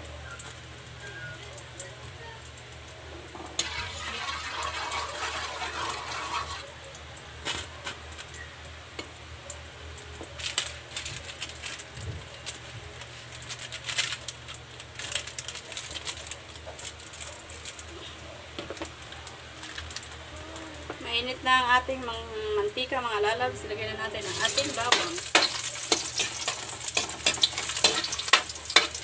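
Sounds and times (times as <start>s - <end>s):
hot oil crackling and popping: 0.0s - 29.0s
oil hissing in a wok: 3.5s - 6.7s, 24.2s - 29.0s.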